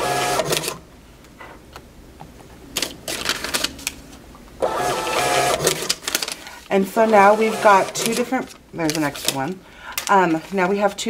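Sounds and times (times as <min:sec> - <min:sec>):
receipt printer whirring: 0:00.0 - 0:00.8, 0:04.6 - 0:08.6
printer rapid clicking chatter: 0:04.7 - 0:06.0, 0:07.0 - 0:08.4.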